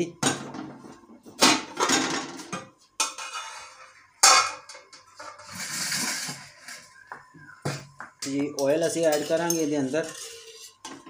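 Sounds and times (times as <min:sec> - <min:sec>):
metal pot and lid clanking: 0:01.4 - 0:06.4.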